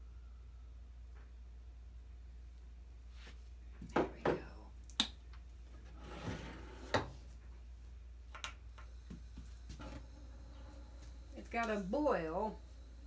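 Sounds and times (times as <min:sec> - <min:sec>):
soft rustle: 0:03.0 - 0:03.8.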